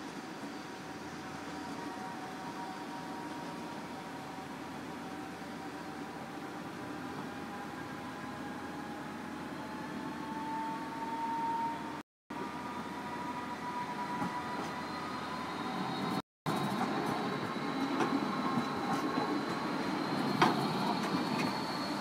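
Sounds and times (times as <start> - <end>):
electric tram whine: 0.0 - 22.0
wheels rumbling on rail: 0.0 - 22.0.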